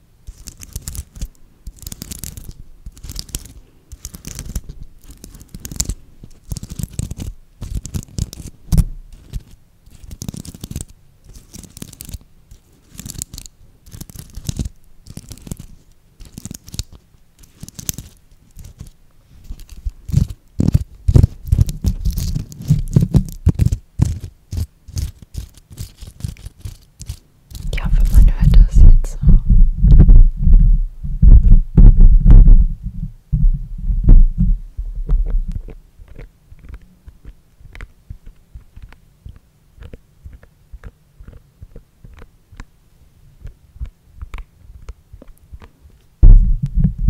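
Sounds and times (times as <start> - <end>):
fingers scratching sequins: 0.2 - 30.1, 35.0 - 42.7
low thumps: 27.7 - 35.7, 46.2 - 47.0.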